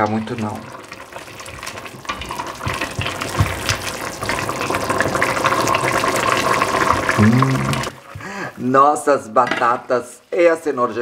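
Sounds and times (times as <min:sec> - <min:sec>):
soup bubbling in a pot: 0:00.0 - 0:08.3.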